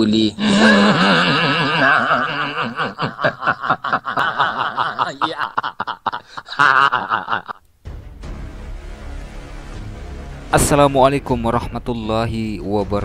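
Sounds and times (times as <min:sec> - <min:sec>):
man laughing hard: 0:00.4 - 0:07.6.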